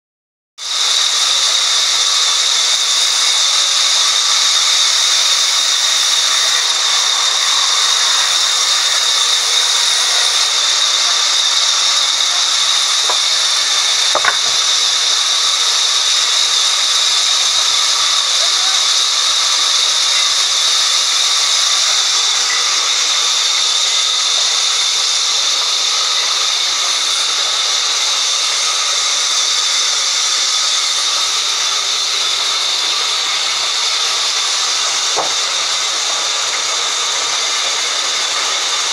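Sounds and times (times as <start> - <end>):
band saw cutting wood: 0.7 - 38.9
small knock: 14.2 - 14.5.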